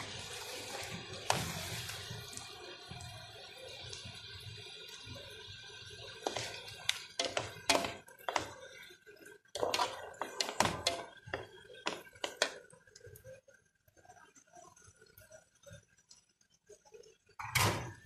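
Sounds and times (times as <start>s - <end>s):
utensils knocking on cookware: 6.2s - 8.6s, 9.6s - 12.6s.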